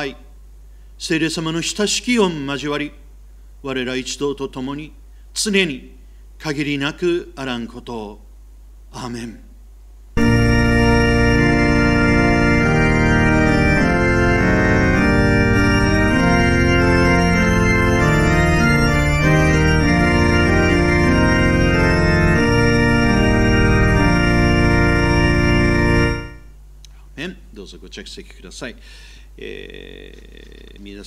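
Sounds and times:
organ playing sustained chords: 0:10.2 - 0:26.6.

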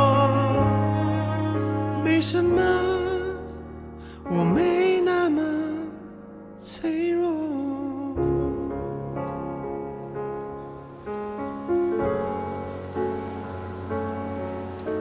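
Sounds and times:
man singing: 0:00.0 - 0:08.9
slow piano chords: 0:00.0 - 0:15.0.

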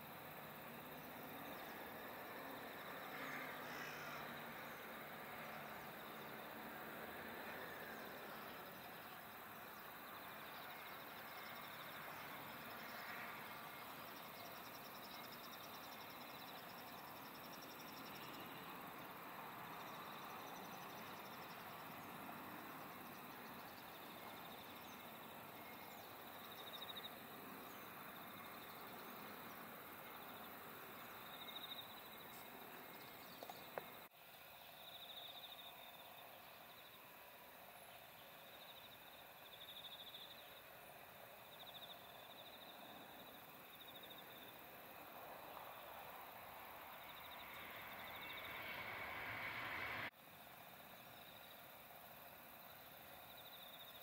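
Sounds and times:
insects trilling: 0:00.0 - 0:54.0
steady soft hiss: 0:00.0 - 0:54.0.

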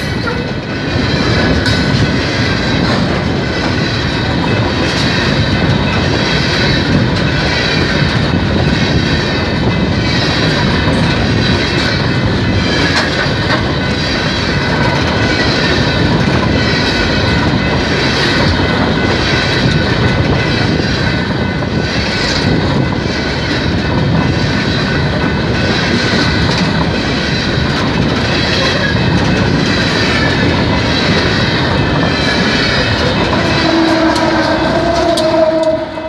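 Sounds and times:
train wheels rumbling on rail: 0:00.0 - 0:36.0
high-pitched squeal: 0:29.6 - 0:36.0.

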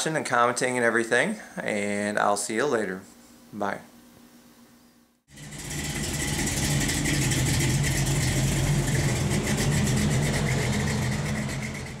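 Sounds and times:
car engine running: 0:05.3 - 0:12.0.

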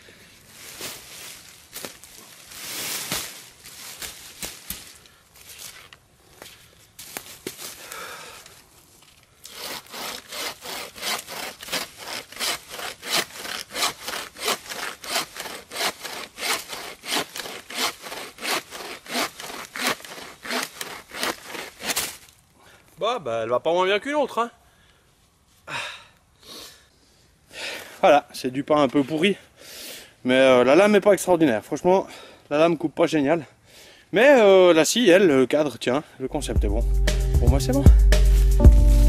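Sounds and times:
saw cutting through branch: 0:09.4 - 0:22.3.

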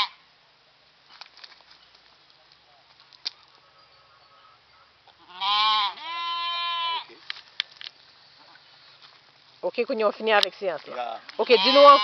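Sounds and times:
sheep bleating: 0:04.0 - 0:07.2, 0:11.4 - 0:12.0.

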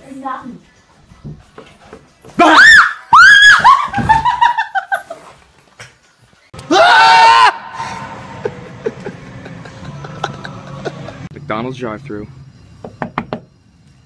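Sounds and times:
people screaming: 0:02.4 - 0:04.2, 0:06.6 - 0:09.2
man yelling in fright: 0:06.6 - 0:08.2.

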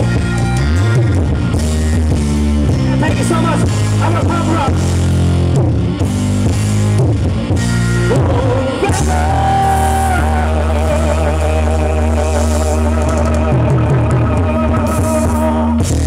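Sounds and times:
live rock band playing ballad: 0:00.0 - 0:16.0
man singing: 0:08.0 - 0:15.8.

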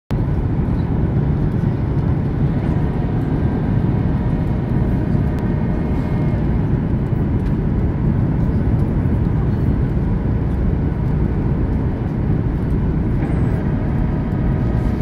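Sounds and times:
jet engine and airflow rush: 0:00.1 - 0:15.0.

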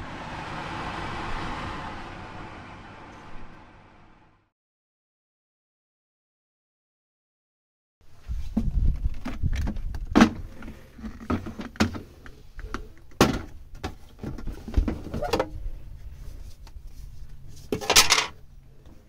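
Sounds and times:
knocks and thuds of handling: 0:13.2 - 0:15.5.

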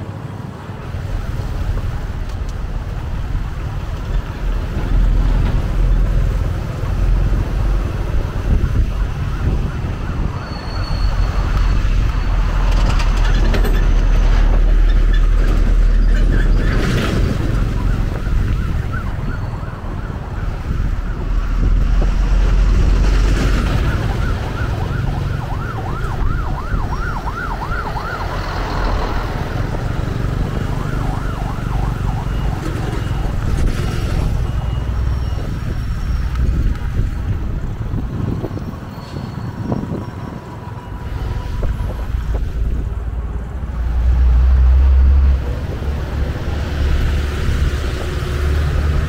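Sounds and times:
road traffic rumble: 0:00.0 - 0:49.0
wind on microphone: 0:00.8 - 0:49.0
emergency vehicle siren yelping: 0:06.8 - 0:13.2, 0:16.1 - 0:38.8.

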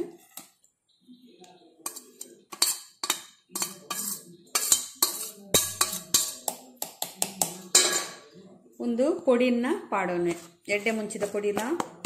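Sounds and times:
steel spoon clinking on metal: 0:01.8 - 0:06.7.

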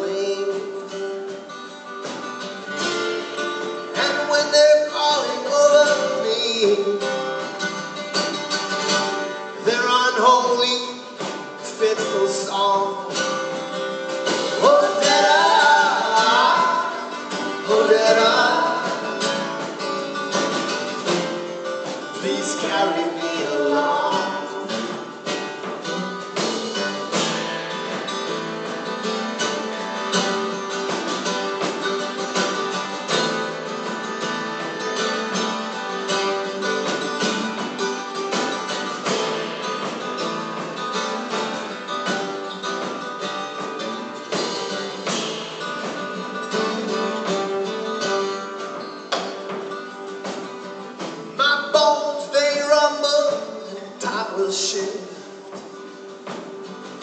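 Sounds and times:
person singing: 0:00.0 - 0:01.2, 0:04.0 - 0:07.2, 0:09.6 - 0:13.6, 0:14.3 - 0:19.4, 0:21.8 - 0:25.2, 0:51.4 - 0:55.5
acoustic guitars playing: 0:00.0 - 0:57.0.

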